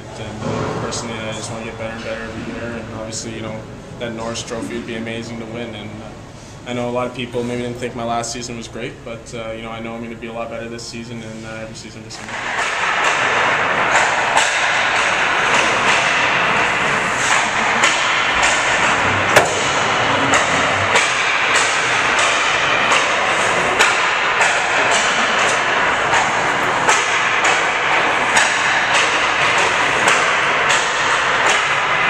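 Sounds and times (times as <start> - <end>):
hockey stick hitting puck: 12.3 - 32.0.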